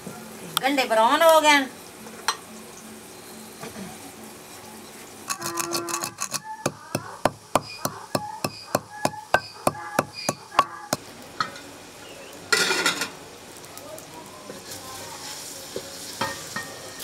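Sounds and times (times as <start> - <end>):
metal utensils clinking: 5.3 - 6.6, 12.5 - 13.2.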